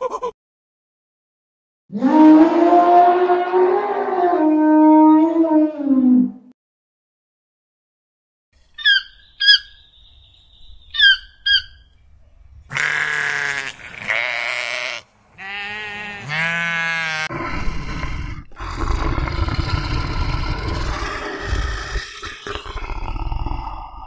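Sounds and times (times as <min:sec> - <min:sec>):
toucan calling: 0:08.6 - 0:12.0
sheep bleating: 0:12.7 - 0:17.3
bear growling: 0:17.2 - 0:24.0.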